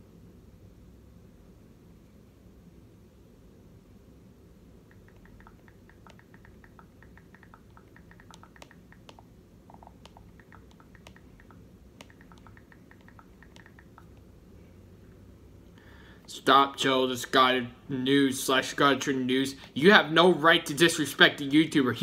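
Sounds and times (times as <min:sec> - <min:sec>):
low room hum: 0:00.0 - 0:22.0
keyboard typing clicks: 0:04.9 - 0:14.3.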